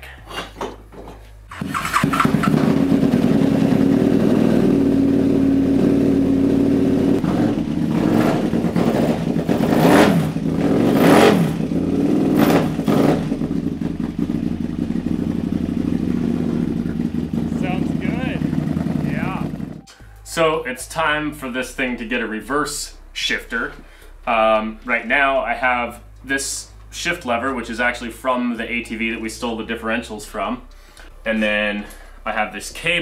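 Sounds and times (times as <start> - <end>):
motorcycle engine idling: 1.5 - 19.9
motorcycle engine starting: 1.5 - 19.9.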